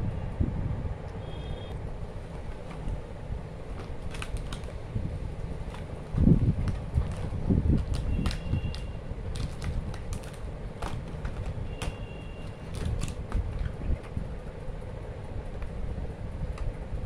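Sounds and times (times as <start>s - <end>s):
steady low rumble: 0.0s - 17.0s
packaging clicks and crinkles: 2.3s - 14.2s.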